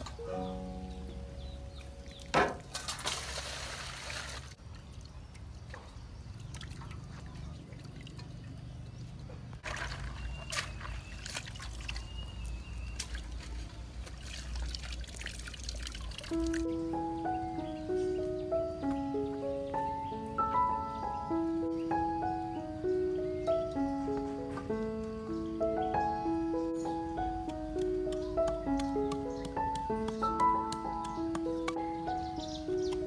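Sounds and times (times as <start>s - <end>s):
water sloshing and splashing: 1.8s - 16.7s
water dripping: 9.6s - 17.1s, 27.2s - 31.9s
water pouring into metal basin: 14.1s - 16.6s.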